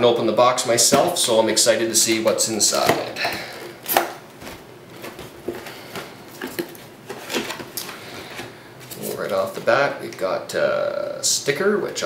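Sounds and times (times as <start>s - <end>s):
cardboard box handling: 3.9s - 9.6s
cardboard rustles and knocks: 4.0s - 9.1s.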